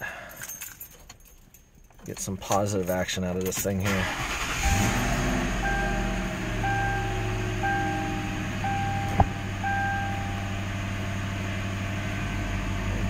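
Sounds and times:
car engine idling: 0:03.9 - 0:13.0
dashboard warning chime beeping: 0:04.1 - 0:11.1.

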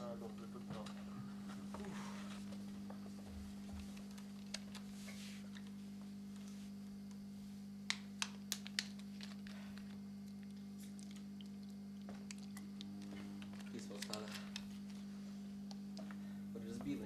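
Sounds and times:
amplifier electrical hum: 0:00.0 - 0:17.0.

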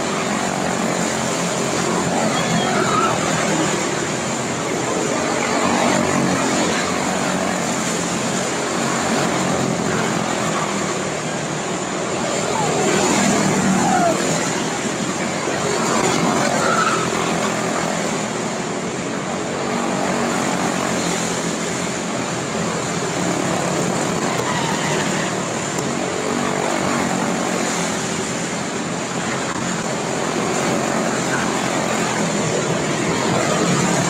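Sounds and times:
small racing engines buzzing: 0:00.0 - 0:34.0.

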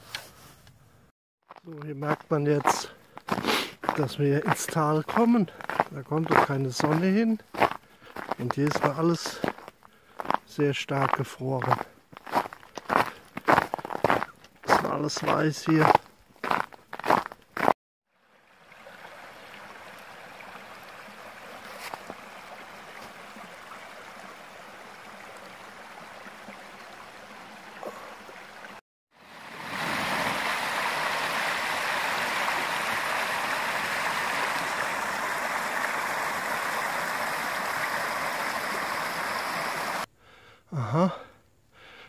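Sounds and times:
brook rushing over stones: 0:18.4 - 0:40.1.

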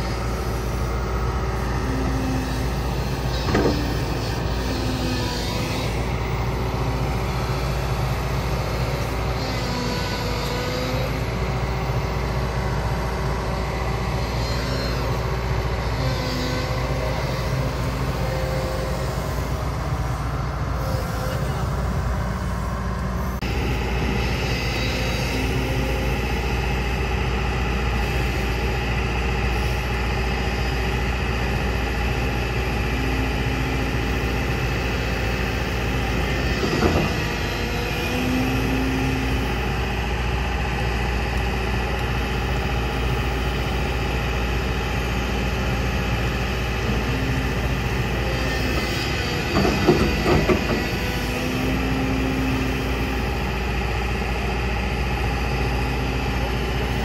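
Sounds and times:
excavator diesel engine running: 0:00.0 - 0:57.0
metal clanks and knocks: 0:03.3 - 0:04.3, 0:36.6 - 0:37.3, 0:49.4 - 0:51.1.

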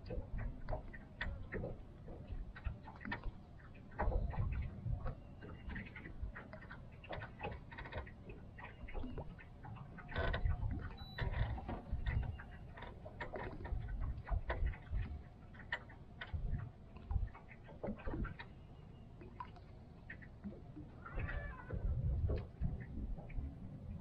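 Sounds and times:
waves lapping against boat hull: 0:00.0 - 0:24.0
wind rumble on microphone: 0:00.0 - 0:24.0.

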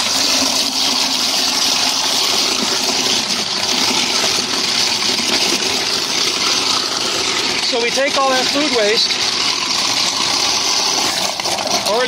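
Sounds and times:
food waste grinder whirring: 0:00.0 - 0:12.0.

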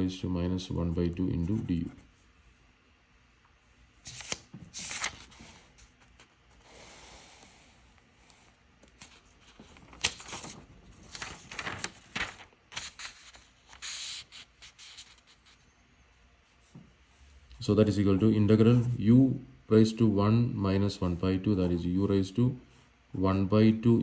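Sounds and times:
notebook pages rustling: 0:04.0 - 0:06.6, 0:08.8 - 0:15.6.

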